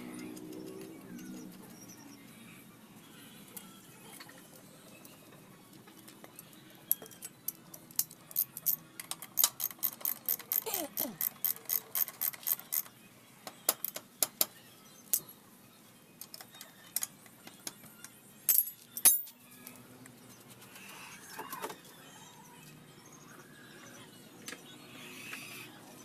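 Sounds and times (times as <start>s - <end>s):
ratchet wrench clicking: 9.4s - 10.6s, 11.2s - 12.9s
metal clinks of tools: 18.5s - 19.4s.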